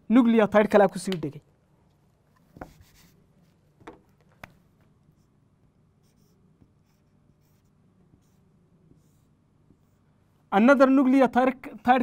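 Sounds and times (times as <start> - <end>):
marker drawing on whiteboard: 2.2 - 11.0.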